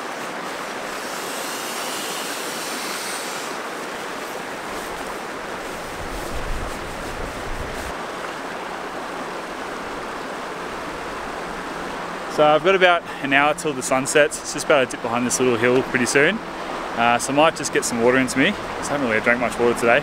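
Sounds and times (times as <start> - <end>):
river rapids rushing: 0.0 - 20.0.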